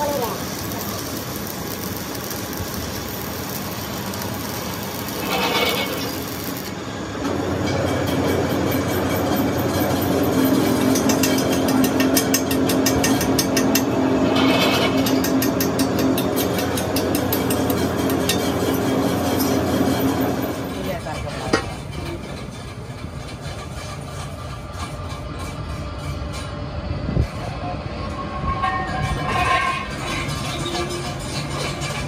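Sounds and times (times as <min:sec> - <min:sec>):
arc welding crackling: 0:00.0 - 0:13.9.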